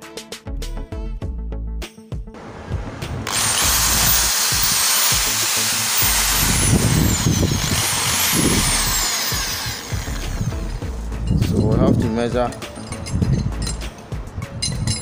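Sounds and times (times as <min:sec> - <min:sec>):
hammer drill motor whine: 0:03.2 - 0:10.8.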